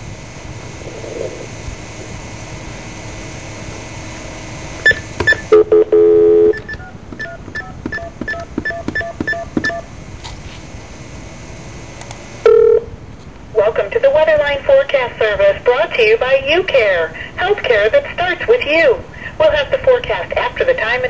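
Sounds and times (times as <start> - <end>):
telephone line hiss: 0.0 - 13.0
dial tone: 4.8 - 9.9, 12.4 - 12.9
short telephone tone: 4.9 - 9.9, 12.4 - 12.9
touch-tone dialing beeps: 4.9 - 9.9.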